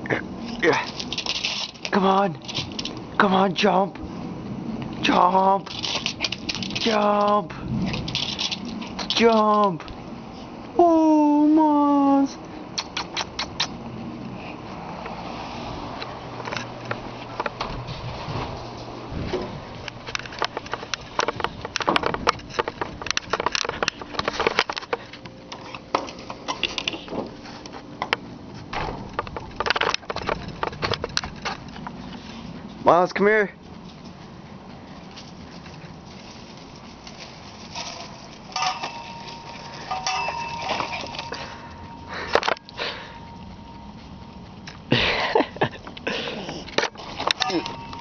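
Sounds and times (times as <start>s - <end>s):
metal rattling and clanking: 5.7s - 7.0s, 7.6s - 9.3s, 16.4s - 27.3s, 28.7s - 31.9s, 37.0s - 44.4s, 46.6s - 48.0s
ringing metallic tone: 37.8s - 44.6s, 47.3s - 48.0s.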